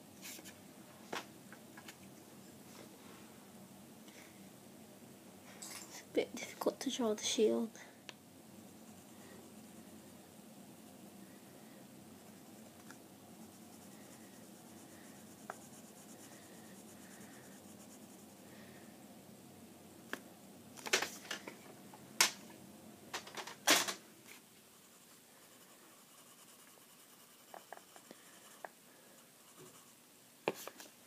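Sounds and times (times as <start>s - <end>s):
pencil scratching on paper: 8.7s - 10.0s, 11.6s - 18.4s, 24.7s - 30.7s.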